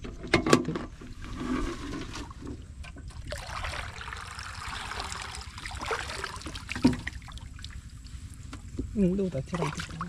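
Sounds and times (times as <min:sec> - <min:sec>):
muddy water splashing: 0:03.1 - 0:10.0.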